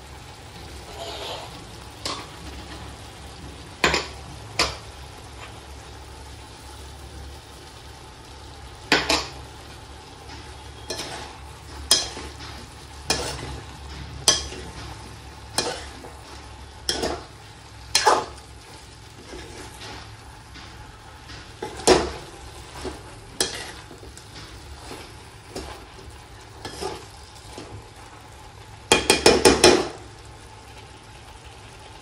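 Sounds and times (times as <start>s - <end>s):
spatula scraping a pan: 0.6s - 3.1s, 8.9s - 28.0s.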